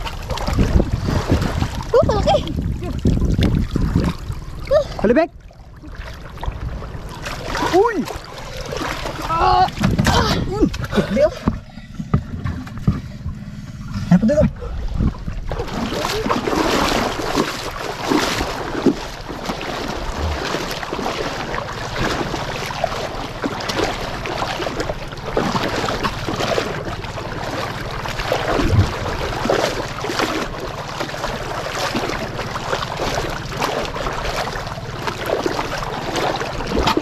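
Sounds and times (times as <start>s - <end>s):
wind buffeting microphone: 0.0s - 5.0s, 11.6s - 16.2s, 28.4s - 29.6s
sea water washing around boat: 0.0s - 37.0s.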